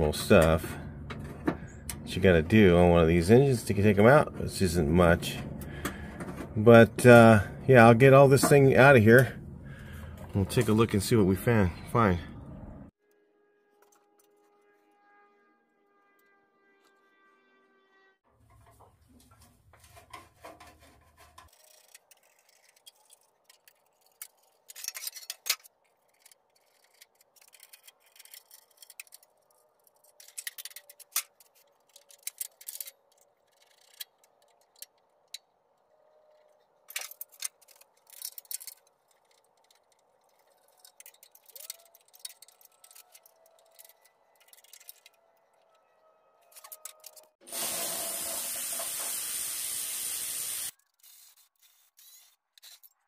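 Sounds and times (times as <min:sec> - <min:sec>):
hand tools clicking and clinking: 0:19.8 - 0:35.5, 0:36.3 - 0:45.5, 0:46.4 - 0:47.4.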